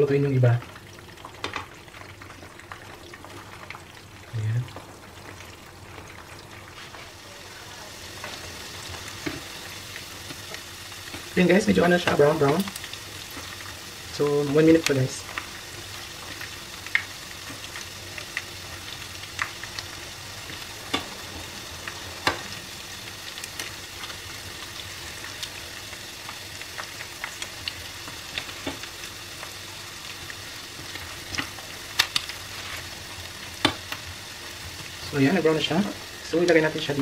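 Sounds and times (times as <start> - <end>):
chicken sizzling in hot oil: 0.0 - 37.0
oil popping: 8.1 - 35.1.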